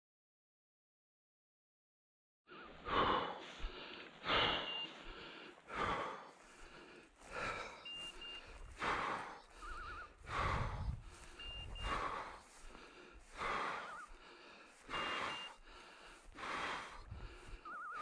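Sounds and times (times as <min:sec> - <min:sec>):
heavy breathing: 0:02.5 - 0:18.0
dry grass rustling: 0:06.3 - 0:14.9.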